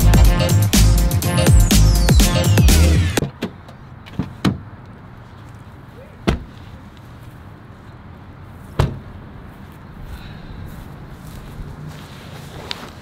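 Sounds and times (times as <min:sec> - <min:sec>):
faint outdoor background: 0:00.0 - 0:13.0
car door knocks: 0:08.8 - 0:09.0.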